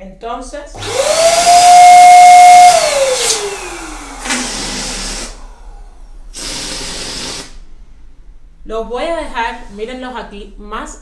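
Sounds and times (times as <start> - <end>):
electric balloon pump motor whine: 0.8 - 7.6
air rushing bursts: 2.7 - 8.0.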